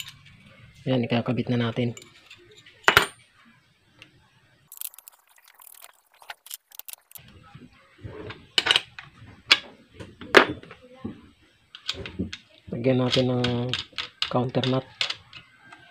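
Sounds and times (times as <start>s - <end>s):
small metal parts clicking: 0.0s - 0.5s, 4.7s - 7.2s, 11.7s - 15.5s.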